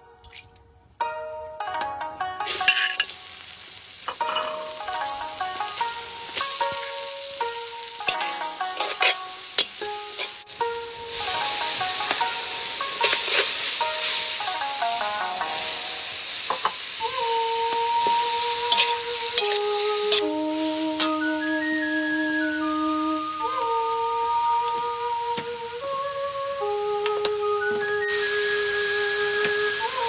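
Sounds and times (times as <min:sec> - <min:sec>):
plucked melody: 0:01.0 - 0:30.0
chillies sizzling in hot oil: 0:02.2 - 0:30.0
metal ladle stirring in wok: 0:08.1 - 0:10.3, 0:13.0 - 0:14.2, 0:18.7 - 0:20.3.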